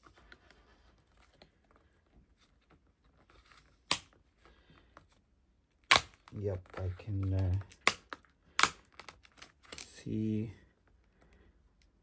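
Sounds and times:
sharp plastic snap: 3.9 - 4.2, 5.8 - 6.4, 7.4 - 9.9.

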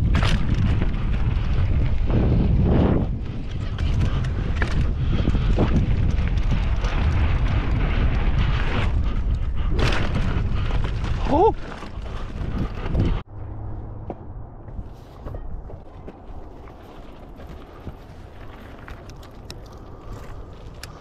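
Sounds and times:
tyre and trail noise: 0.0 - 21.0
wind buffeting microphone: 0.0 - 21.0.

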